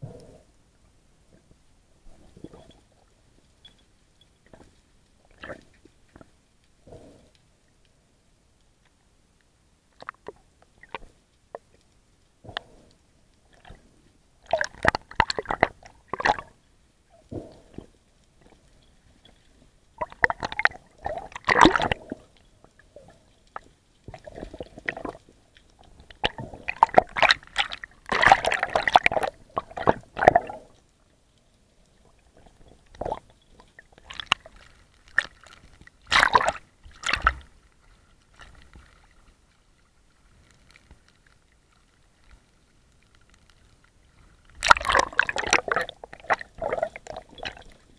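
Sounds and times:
seawater splashing and gurgling: 0:20.0 - 0:30.8, 0:32.0 - 0:40.0, 0:44.5 - 0:47.9.

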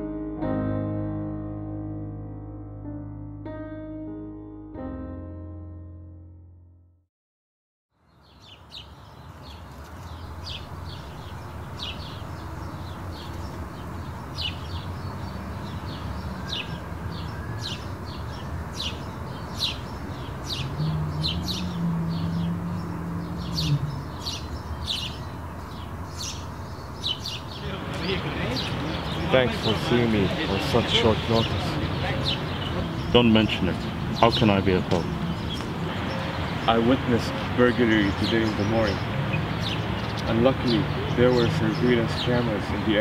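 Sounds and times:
small birds chirping: 0:08.0 - 0:43.0
low hum: 0:20.3 - 0:27.0.

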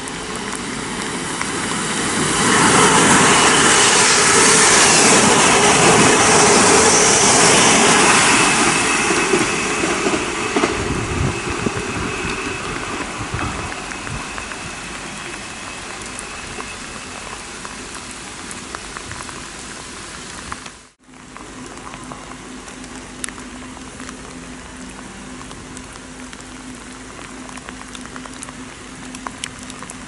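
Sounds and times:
steady rain falling: 0:00.0 - 0:30.0
raindrop clicks near microphone: 0:10.0 - 0:30.0.

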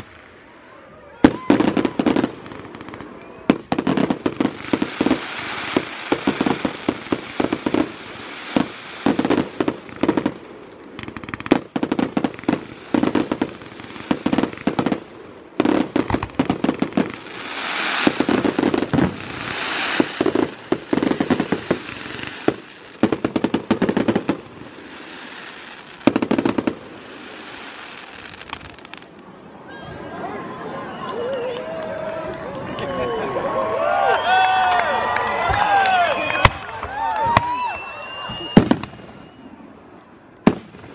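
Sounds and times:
fireworks crackling and hissing: 0:00.0 - 0:29.6, 0:36.2 - 0:39.7, 0:40.4 - 0:40.9
fireworks bangs and pops: 0:01.2 - 0:29.3, 0:38.3 - 0:39.4, 0:40.4 - 0:40.9.

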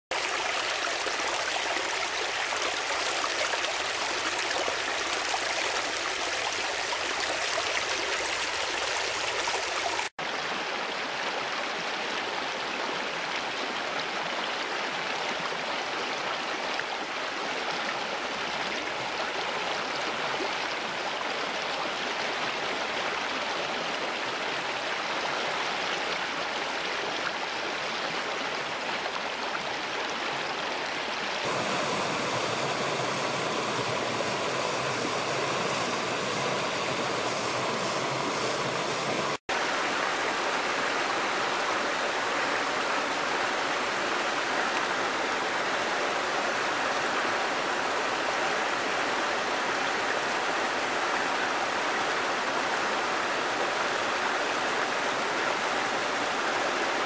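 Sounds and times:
water rushing over rocks: 0:31.4 - 0:50.8.

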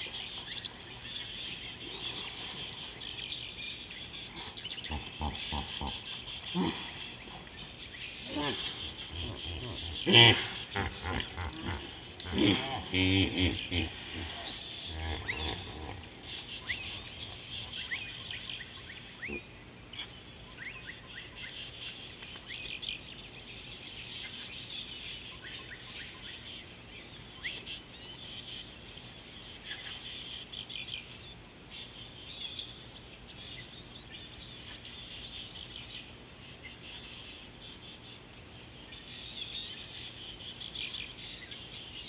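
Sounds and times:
wild birds chirping: 0:00.0 - 0:42.0
hippo grunt: 0:04.3 - 0:07.4, 0:08.2 - 0:16.3.

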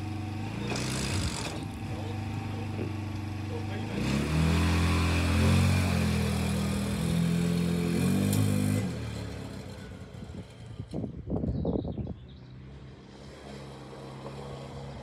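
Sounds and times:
quad bike engine revving: 0:00.0 - 0:11.0.

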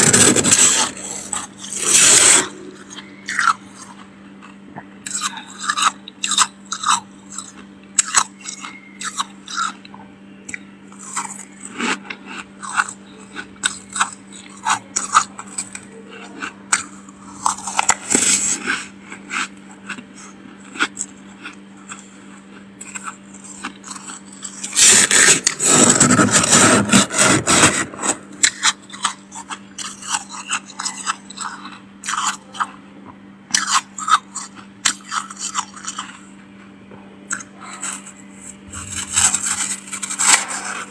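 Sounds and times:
spoon scraping freezer frost: 0:00.0 - 0:04.0, 0:22.8 - 0:32.7, 0:37.3 - 0:40.9.

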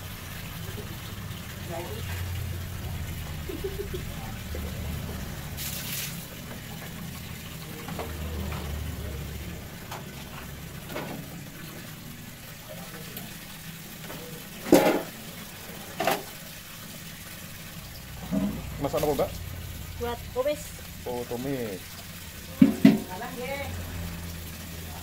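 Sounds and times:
low steady hum: 0:16.8 - 0:24.7.

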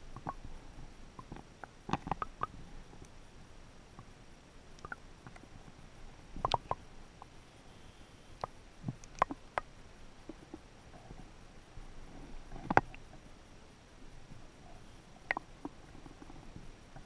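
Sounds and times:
low underwater hiss: 0:00.0 - 0:17.0
underwater clicks and knocks: 0:01.2 - 0:02.5, 0:12.5 - 0:13.0.

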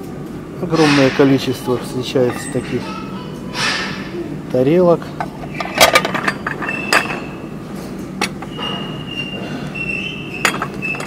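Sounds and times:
porcelain plates clinking: 0:00.9 - 0:02.9, 0:05.1 - 0:07.4, 0:08.0 - 0:11.0.

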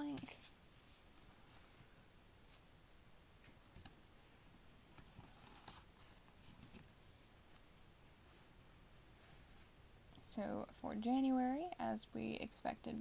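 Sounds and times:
paper rustling: 0:04.9 - 0:07.2.

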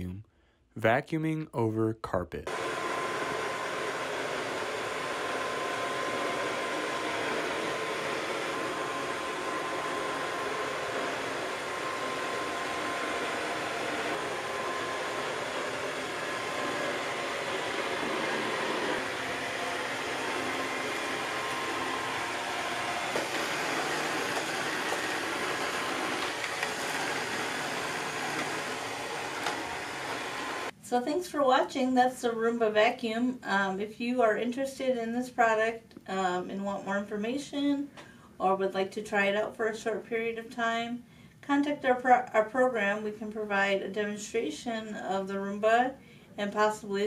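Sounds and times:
robot vacuum whirring: 0:02.5 - 0:30.7.

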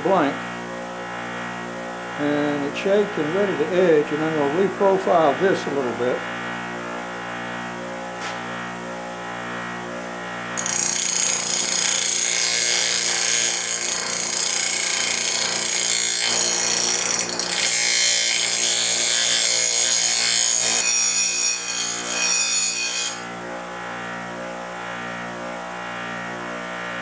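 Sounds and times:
bench grinder grinding steel: 0:02.1 - 0:07.2, 0:10.2 - 0:25.8.

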